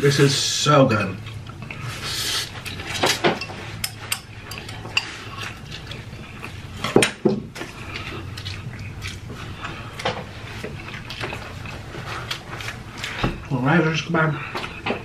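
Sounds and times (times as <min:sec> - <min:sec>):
noodles slurped and chewed: 0:07.6 - 0:13.3.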